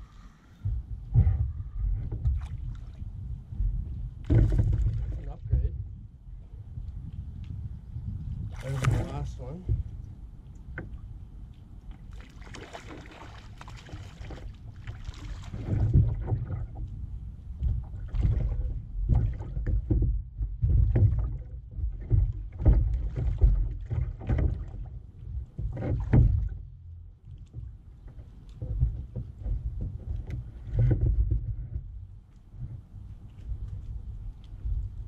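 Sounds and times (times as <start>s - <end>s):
wind rumbling on microphone: 0.0s - 35.0s
waves slapping kayak hull: 8.5s - 9.9s, 12.1s - 16.9s, 17.7s - 26.7s.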